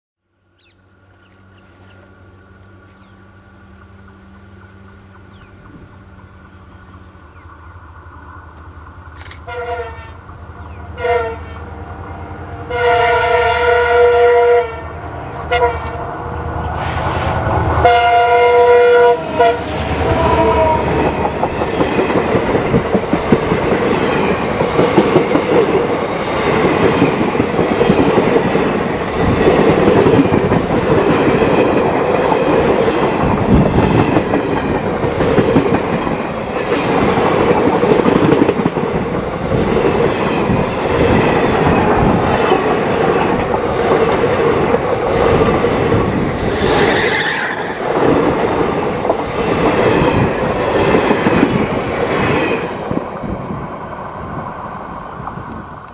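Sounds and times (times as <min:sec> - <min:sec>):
train rumbling past: 0:00.4 - 0:55.9
locomotive horn blasts: 0:09.4 - 0:10.3, 0:11.0 - 0:16.0, 0:17.8 - 0:21.0.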